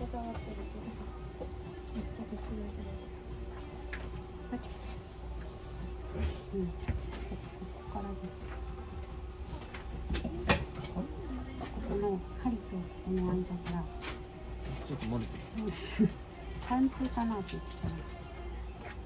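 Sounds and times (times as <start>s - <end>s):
electronic device double beeping: 14.6s - 15.0s, 16.6s - 17.0s.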